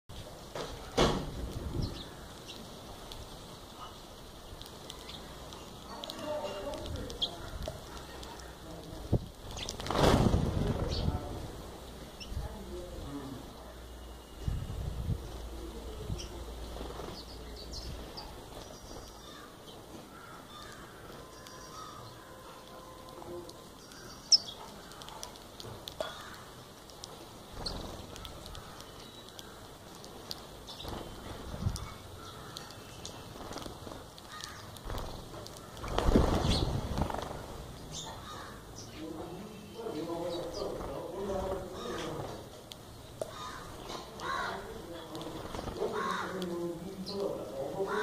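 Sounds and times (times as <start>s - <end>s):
sparrows chirping: 0.1s - 9.9s, 10.6s - 48.0s
flurry of wingbeats: 4.6s - 11.1s, 16.5s - 19.1s, 27.1s - 28.9s, 29.9s - 37.7s, 40.3s - 42.5s, 43.3s - 46.5s
harsh cawing bird call: 19.2s - 23.0s, 26.0s - 26.6s, 31.8s - 33.0s, 34.2s - 34.8s, 38.0s - 38.8s, 41.6s - 42.2s, 43.2s - 44.7s, 45.6s - 46.5s, 47.8s - 48.0s.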